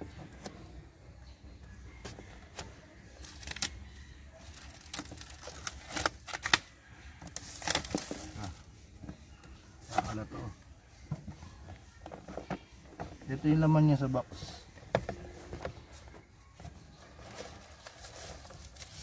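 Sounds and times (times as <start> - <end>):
cardboard scraping and rustling: 14.3 - 19.0.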